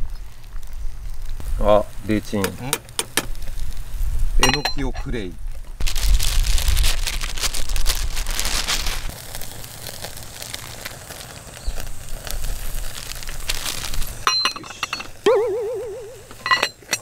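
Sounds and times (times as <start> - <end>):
plastic bag crinkling: 5.8 - 14.2
metal lid clinking on pot: 16.3 - 17.0.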